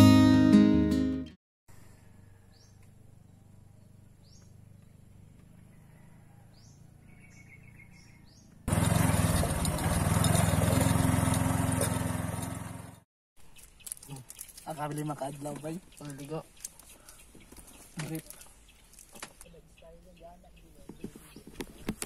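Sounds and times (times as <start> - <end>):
bird chirps: 2.2 - 5.2, 6.3 - 8.6, 15.7 - 22.0
bird trill: 6.3 - 8.6.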